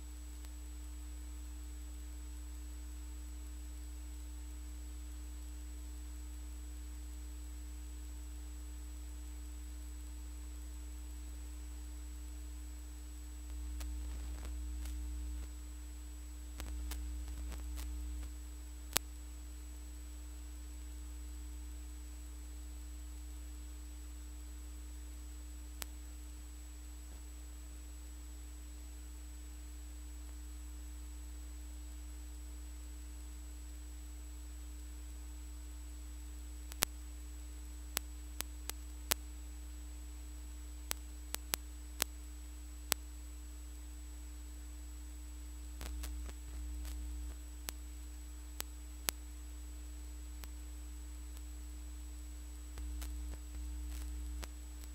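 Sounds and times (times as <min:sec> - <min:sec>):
electrical mains hum: 0:00.0 - 0:54.9
faint clicks: 0:00.3 - 0:00.6, 0:13.4 - 0:15.7, 0:16.5 - 0:19.2, 0:36.6 - 0:37.1, 0:37.9 - 0:39.3, 0:40.8 - 0:42.3, 0:45.7 - 0:49.4, 0:50.3 - 0:50.7, 0:52.4 - 0:54.9
sharp clicks: 0:45.8 - 0:47.8.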